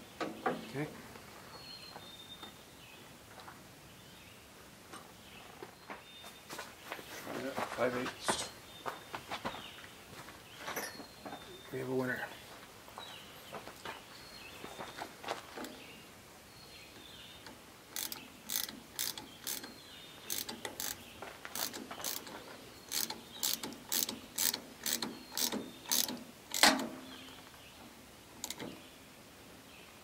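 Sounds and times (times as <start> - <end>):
wrench metal clicks: 17.4 - 26.9, 28.4 - 28.8.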